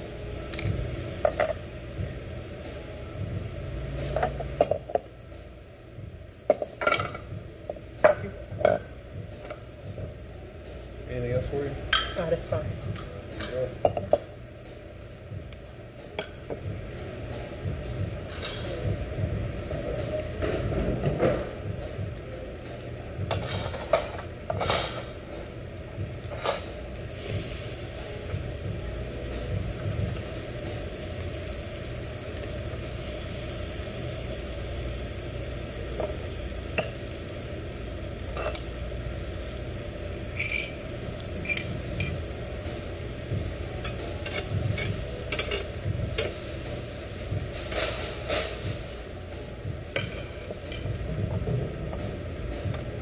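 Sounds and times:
steady low hum: 0.0s - 53.0s
meat sizzling on a grill: 25.9s - 53.0s
tongs clicking on grill grate: 40.4s - 42.2s, 43.8s - 46.4s.

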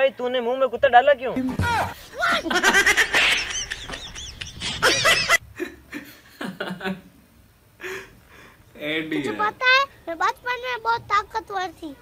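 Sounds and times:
man laughing: 2.2s - 7.1s.

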